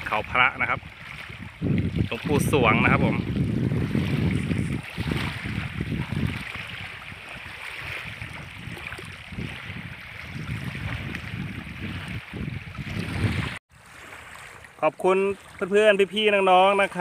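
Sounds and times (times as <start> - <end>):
wind buffeting microphone: 0.0 - 13.6
small waves lapping on shore: 0.0 - 17.0.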